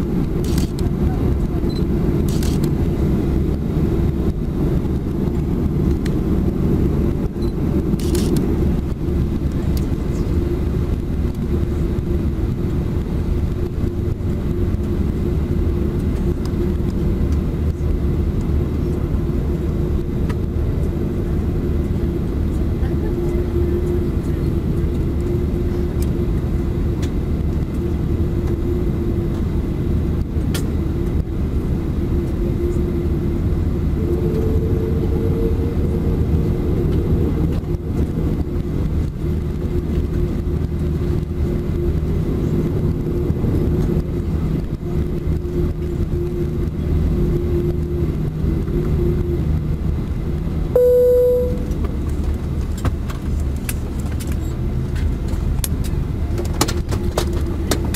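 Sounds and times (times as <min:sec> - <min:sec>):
aircraft cabin drone: 0:00.0 - 0:57.9
humming tone: 0:33.8 - 0:37.5, 0:50.8 - 0:51.9.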